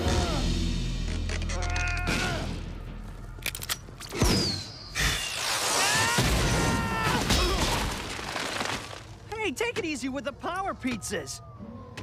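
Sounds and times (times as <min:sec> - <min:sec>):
music: 0:00.0 - 0:04.2
sharp hit with falling whistle: 0:04.2 - 0:05.9.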